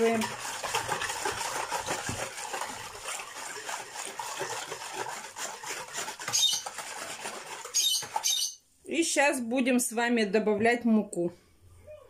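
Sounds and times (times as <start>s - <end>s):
whisk swishing in a plastic bowl: 0.0s - 8.6s.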